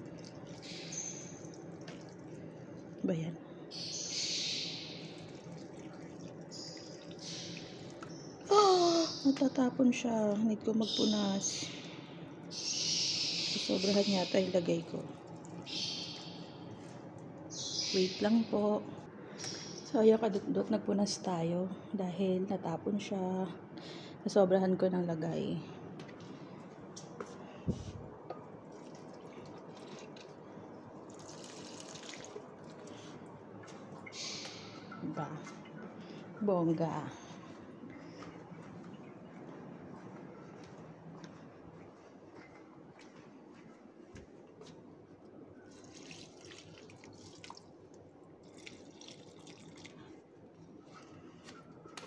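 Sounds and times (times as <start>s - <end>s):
water pouring onto soil: 0.0s - 3.0s, 5.0s - 8.0s, 28.7s - 30.4s, 31.0s - 33.1s, 45.7s - 50.1s.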